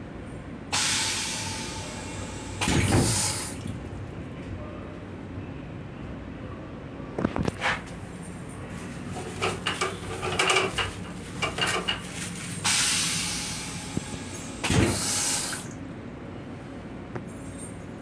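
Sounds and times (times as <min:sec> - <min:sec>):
toilet flush hissing bursts: 0:00.7 - 0:03.7, 0:12.7 - 0:15.8.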